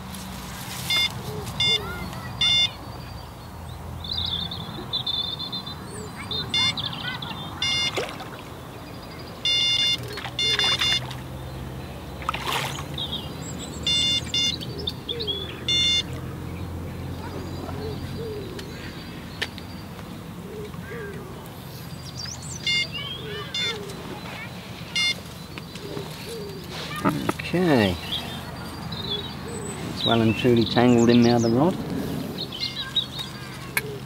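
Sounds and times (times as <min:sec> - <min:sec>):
bite alarm beeping: 0:00.9 - 0:02.8, 0:06.4 - 0:08.1, 0:09.4 - 0:11.2, 0:13.8 - 0:14.7, 0:15.6 - 0:16.2, 0:22.6 - 0:23.9, 0:24.9 - 0:25.3
birds chirping: 0:00.9 - 0:34.0
water splash: 0:07.9 - 0:08.5, 0:12.2 - 0:13.0.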